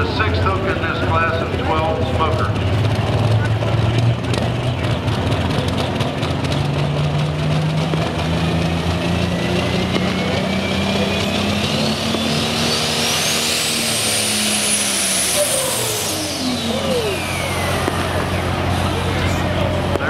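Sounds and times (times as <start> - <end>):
diesel tractor engine at full throttle: 0.0 - 20.0
high turbo whistle: 10.3 - 19.2.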